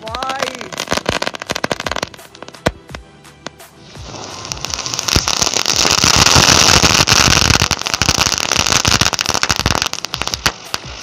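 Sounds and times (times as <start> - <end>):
firecrackers crackling: 0.0 - 11.0
ground spinner hissing: 3.7 - 11.0.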